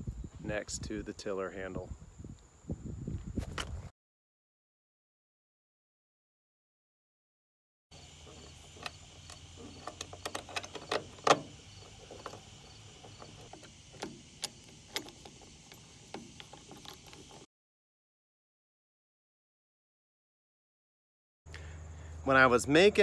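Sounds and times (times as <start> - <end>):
metal clicks and knocks: 8.2 - 17.4.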